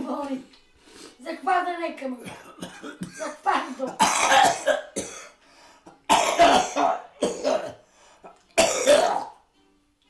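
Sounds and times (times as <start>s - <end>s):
elderly man coughing and hacking: 2.2s - 7.8s, 8.6s - 9.4s.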